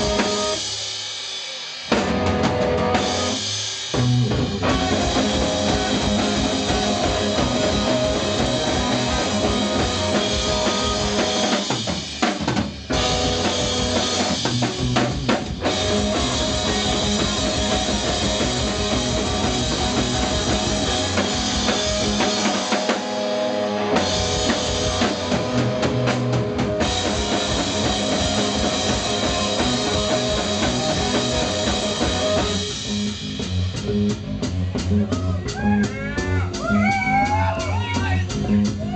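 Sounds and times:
electric guitar: 0.0 - 0.7, 1.9 - 37.6
bass guitar: 0.0 - 0.8, 1.8 - 38.9
drum kit: 0.0 - 38.9.

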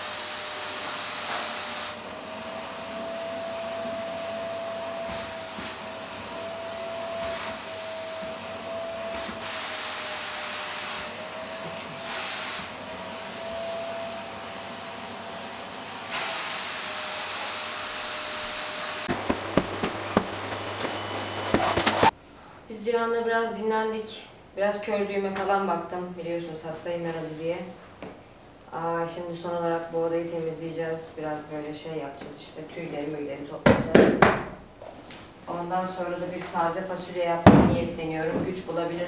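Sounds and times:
vacuum cleaner running: 0.0 - 22.2.

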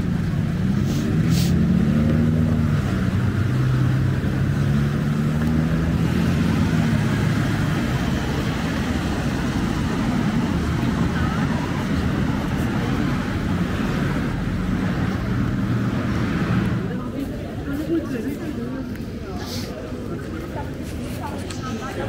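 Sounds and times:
vehicle engine passing close: 0.0 - 17.2
steady road noise: 0.0 - 22.0.

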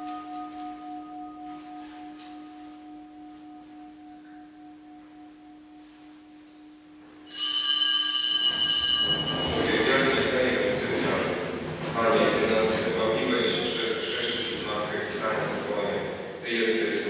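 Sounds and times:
altar bell ringing: 0.0 - 11.4
faint jingling: 7.3 - 11.4.

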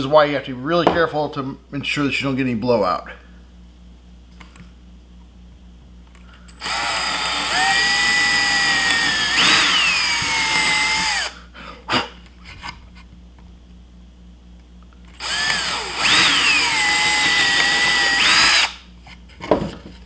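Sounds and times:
cordless drill whining: 6.6 - 11.4, 15.2 - 18.8.

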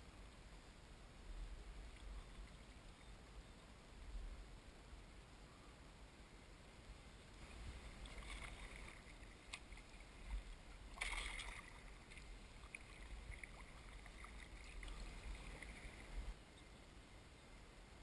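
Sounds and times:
paddle blades dipping: 7.2 - 16.4
water splashing and dripping: 7.4 - 16.4.

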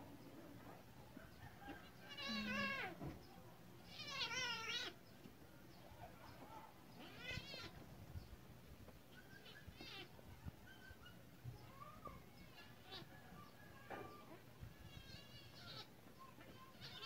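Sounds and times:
cat crying in distress: 2.1 - 3.0.

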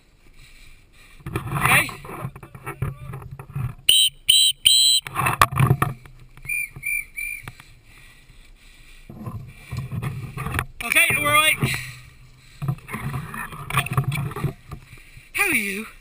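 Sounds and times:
short high-pitched beeps: 3.9 - 5.1
climbing gear clicking and rustling: 9.1 - 15.2.

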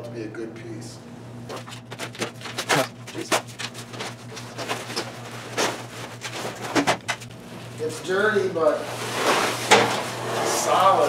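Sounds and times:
plastic wrapping crinkling and tearing: 1.5 - 7.9.

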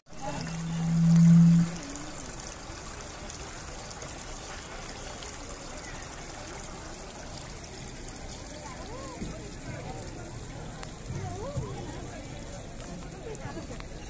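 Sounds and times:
water fountain trickling and splashing: 0.0 - 14.0
low hum: 0.1 - 2.5.

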